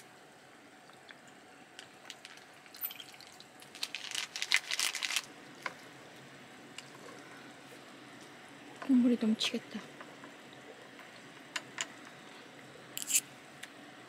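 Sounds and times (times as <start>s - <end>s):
liquid being poured: 0.8s - 6.2s.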